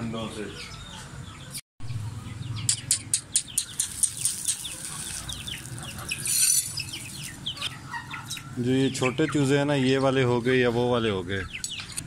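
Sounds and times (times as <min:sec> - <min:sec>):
chickens calling: 0:00.0 - 0:12.0
chicks peeping: 0:00.4 - 0:12.0
grain handled in plastic bag: 0:03.9 - 0:07.4.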